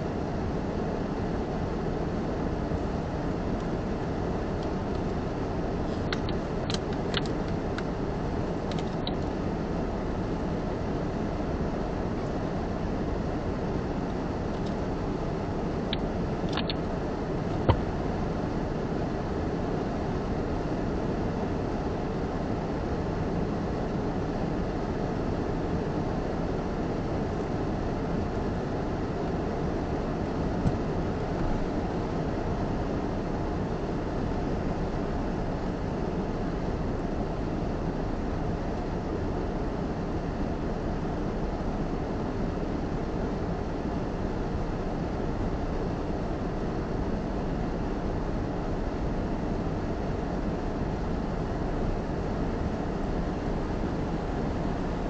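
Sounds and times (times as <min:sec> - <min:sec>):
car idling inside cabin: 0:00.5 - 0:20.7, 0:26.0 - 0:33.2.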